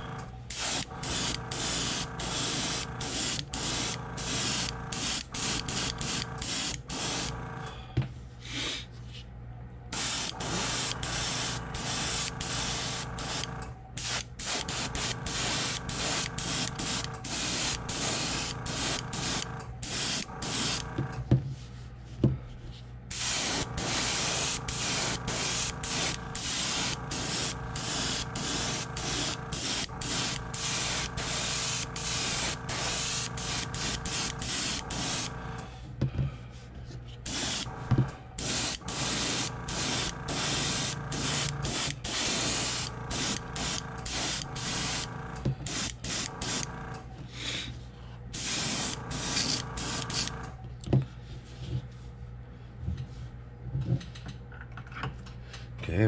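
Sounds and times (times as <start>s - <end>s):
steady low hum: 0.0s - 56.0s
airbrush hissing in short bursts: 0.5s - 7.4s, 10.0s - 20.9s, 23.1s - 35.4s, 37.3s - 37.8s, 38.4s - 45.1s, 45.7s - 46.7s, 48.4s - 50.4s.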